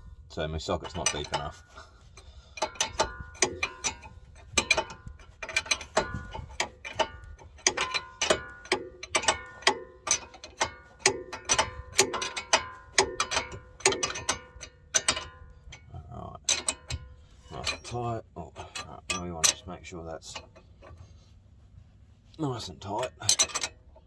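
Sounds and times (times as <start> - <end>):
ratcheting hand tool clicking: 0.8 - 18.0, 23.0 - 24.0.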